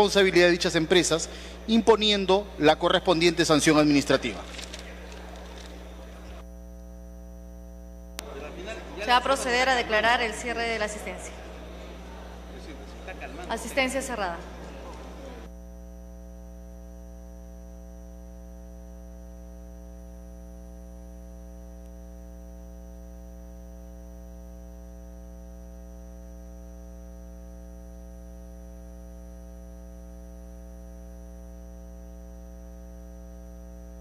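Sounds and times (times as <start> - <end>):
person speaking: 0.0 - 6.4
steady electrical hum: 0.0 - 34.0.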